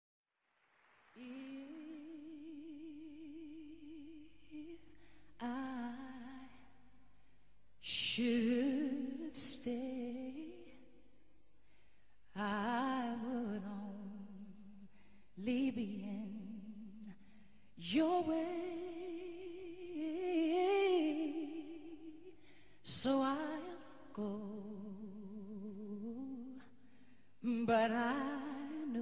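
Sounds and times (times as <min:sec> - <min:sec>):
woman singing with vibrato: 0:01.1 - 0:06.8, 0:07.8 - 0:10.8, 0:12.4 - 0:14.6, 0:15.4 - 0:17.1, 0:17.8 - 0:26.7, 0:27.4 - 0:29.0.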